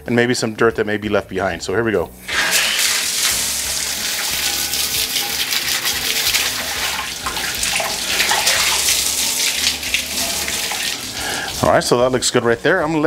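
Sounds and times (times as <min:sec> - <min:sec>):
hose spray hissing on metal: 0:02.2 - 0:11.9.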